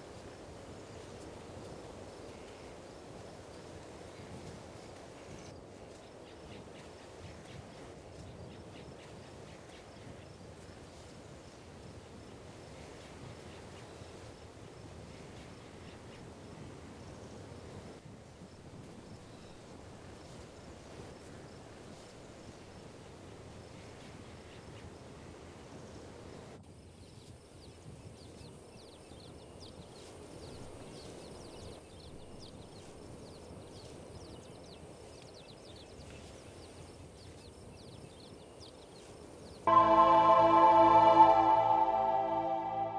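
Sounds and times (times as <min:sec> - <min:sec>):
low even rush: 0:39.7 - 0:42.9
music: 0:39.7 - 0:42.9
thin steady high tone: 0:39.7 - 0:42.9.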